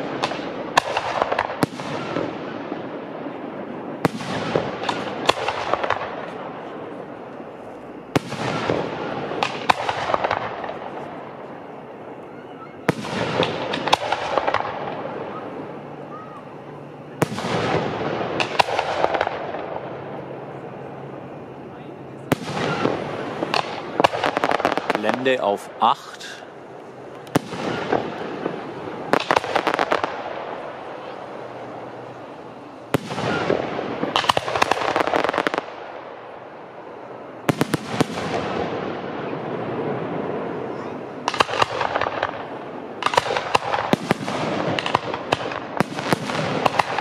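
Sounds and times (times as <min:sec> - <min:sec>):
firework bang: 0:00.0 - 0:07.2, 0:08.1 - 0:11.4, 0:12.8 - 0:21.4, 0:22.2 - 0:25.4, 0:27.2 - 0:31.4, 0:32.8 - 0:35.8
fireworks crackling: 0:00.0 - 0:47.0
fireworks rumble: 0:00.0 - 0:47.0.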